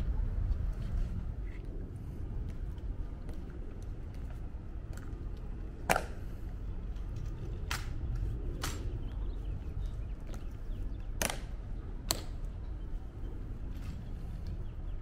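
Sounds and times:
steady low rumble: 0.0s - 15.0s
sharp clicks of heels and rifles: 2.4s - 9.2s, 10.2s - 12.5s.

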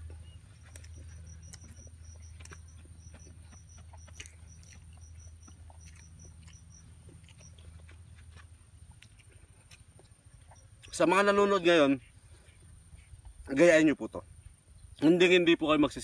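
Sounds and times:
high-pitched chirping pips: 0.0s - 7.7s
person eating mouth sounds: 0.0s - 11.0s.

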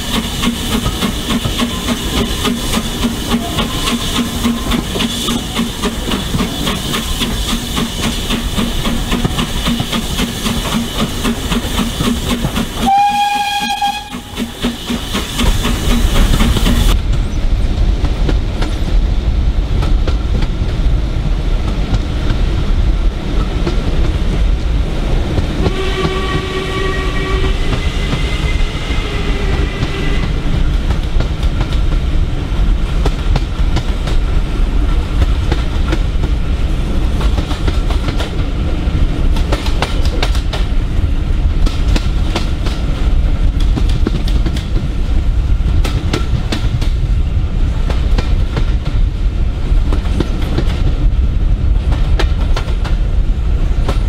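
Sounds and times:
train wheels clattering over rails: 0.0s - 54.0s
high steam whistle: 11.6s - 16.2s, 25.6s - 30.6s
low steam whistle: 12.7s - 15.5s, 25.6s - 30.6s.

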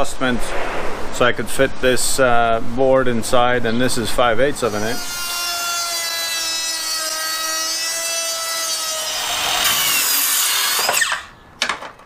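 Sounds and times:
circular saw cutting board: 4.6s - 11.3s
router whining: 5.1s - 11.3s
motor winding down: 9.0s - 11.3s.

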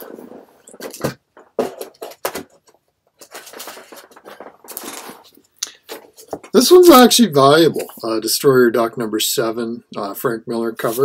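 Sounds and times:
plastic sleeves rustling: 0.0s - 8.1s.

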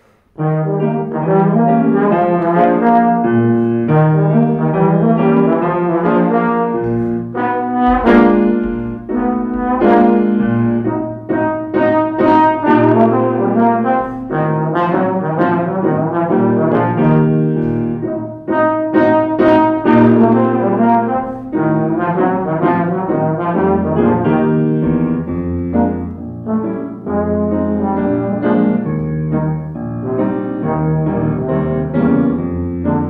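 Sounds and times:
piano: 0.0s - 33.0s
trombone playing jazzy melody: 0.4s - 33.0s
low bass notes: 6.8s - 11.3s.

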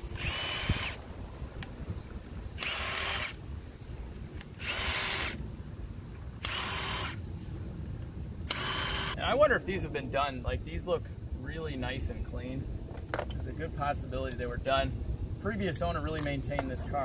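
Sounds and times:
cordless power tool bursts: 0.0s - 1.0s, 2.6s - 3.4s, 4.6s - 5.4s, 6.4s - 7.2s, 8.5s - 9.2s.

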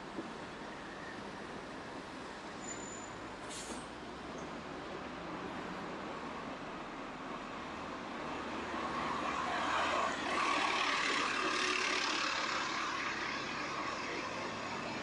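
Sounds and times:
motor vehicle passing: 8.4s - 15.0s.

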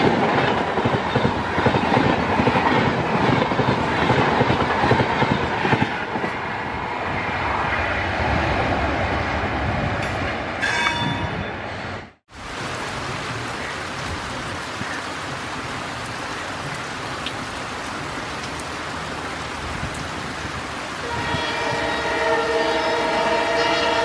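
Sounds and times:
diesel locomotive approaching: 0.0s - 12.9s, 20.3s - 24.0s
rain hissing: 12.3s - 24.0s
multi-tone locomotive horn blast: 21.0s - 24.0s.

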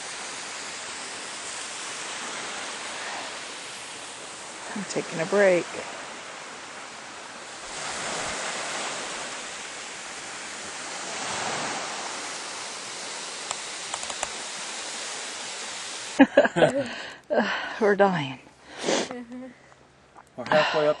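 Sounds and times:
small waves on stony beach: 0.0s - 16.9s
faint ticks: 13.4s - 14.4s.

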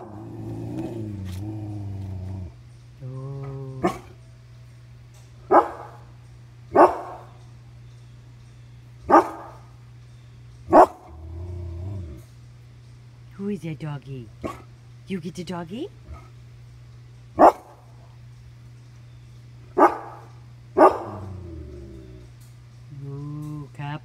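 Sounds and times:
dog growling: 0.0s - 4.4s, 10.7s - 12.4s, 16.0s - 16.4s, 20.8s - 22.4s
dog barking: 3.8s - 4.2s, 5.5s - 6.1s, 6.7s - 7.4s, 9.1s - 9.7s, 10.7s - 11.1s, 17.4s - 17.9s, 19.8s - 21.4s.

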